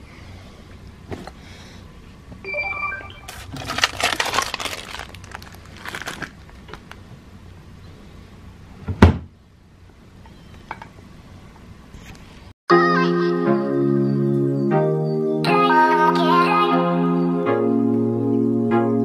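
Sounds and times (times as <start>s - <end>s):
short beep-like tones: 2.4s - 3.4s
plastic items rustling and clattering: 3.3s - 7.0s.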